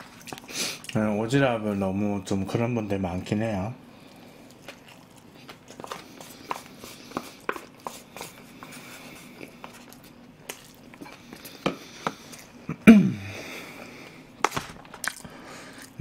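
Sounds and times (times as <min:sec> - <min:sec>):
chewing and lip smacks: 0:00.0 - 0:01.0, 0:04.1 - 0:08.1, 0:15.0 - 0:16.0.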